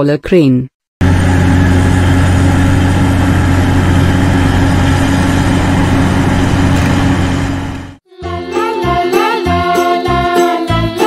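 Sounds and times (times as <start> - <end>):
heavy crane engine running: 1.0 - 8.0.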